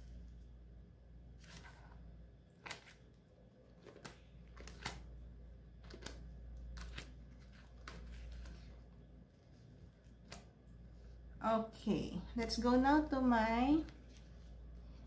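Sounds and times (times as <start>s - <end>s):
plastic binder pages turning: 1.4s - 10.6s.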